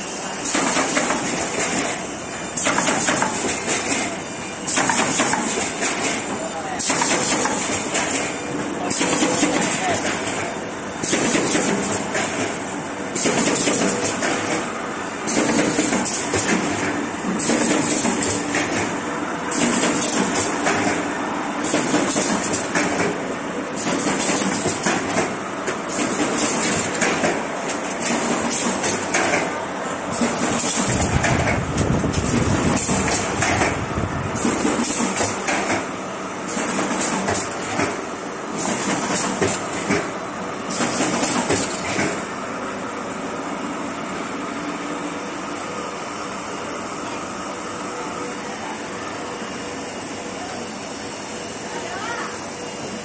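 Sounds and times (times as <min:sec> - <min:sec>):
machine clattering: 0:00.4 - 0:02.0, 0:02.6 - 0:23.2, 0:23.8 - 0:33.8, 0:34.4 - 0:35.9, 0:36.5 - 0:40.1, 0:40.7 - 0:42.2.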